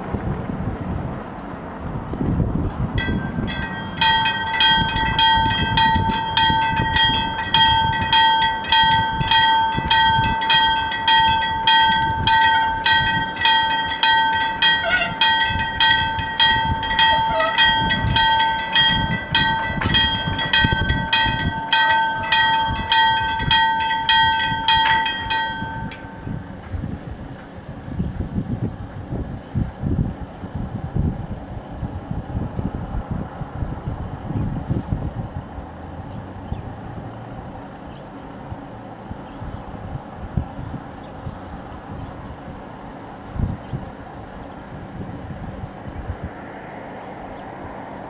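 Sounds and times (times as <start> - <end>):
level crossing bells ringing: 3.0 - 26.4.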